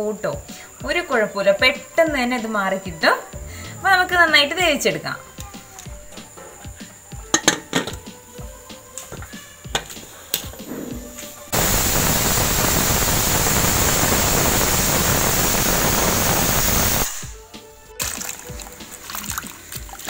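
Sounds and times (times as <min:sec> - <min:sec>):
pressure cooker steam hissing: 0:11.5 - 0:17.4
water splashing: 0:18.0 - 0:20.0.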